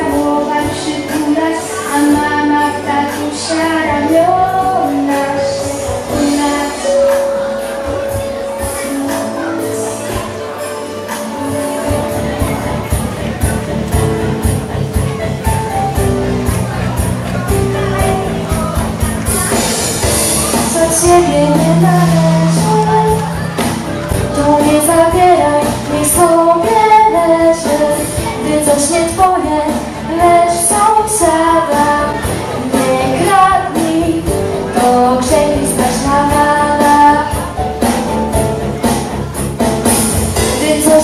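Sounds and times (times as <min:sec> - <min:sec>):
instrumental accompaniment with beat: 0:00.0 - 0:41.0
choir singing in unison: 0:20.7 - 0:25.2.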